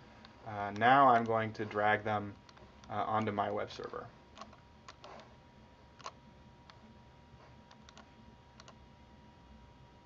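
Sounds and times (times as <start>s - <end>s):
computer mouse clicks: 0.2s - 1.4s, 2.4s - 5.3s, 6.0s - 6.8s, 7.7s - 8.8s.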